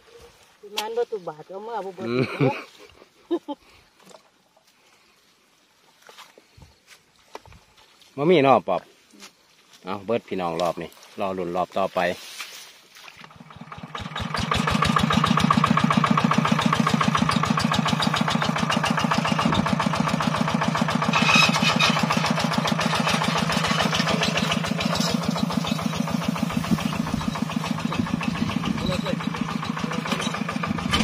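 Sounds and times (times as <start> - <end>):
small engine running: 13.3 - 31.0.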